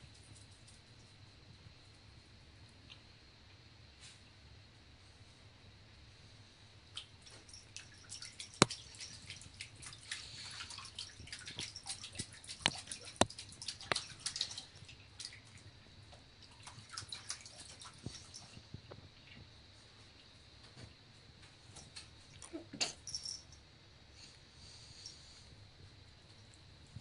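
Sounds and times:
water splashing and dripping: 7.0 - 15.7, 16.4 - 18.6
paw smacking water: 7.8 - 15.6, 16.4 - 18.4.

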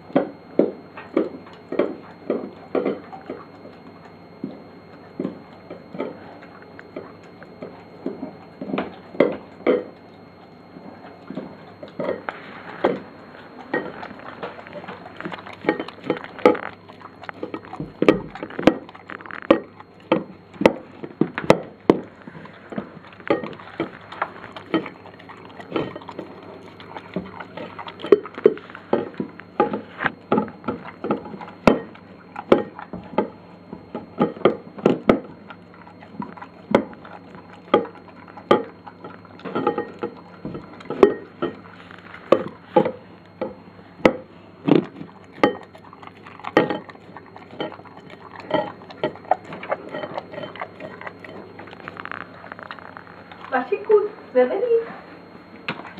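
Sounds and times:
dog chewing and licking: 0.0 - 55.9
teeth clicking against plate: 42.2 - 53.5.

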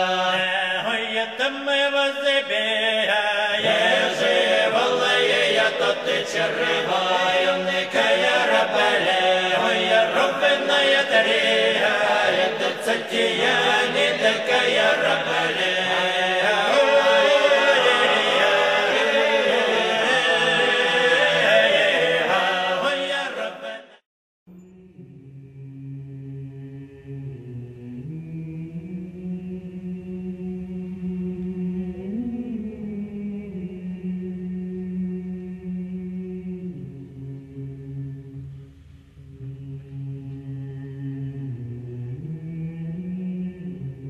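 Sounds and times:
chanted choral singing: 0.0 - 24.0.

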